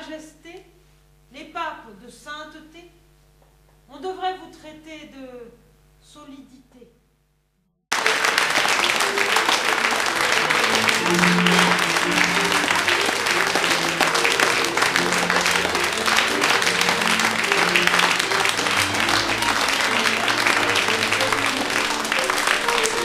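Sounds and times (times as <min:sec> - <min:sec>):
audience applauding: 0:07.9 - 0:23.0
music with slow low notes: 0:08.0 - 0:23.0.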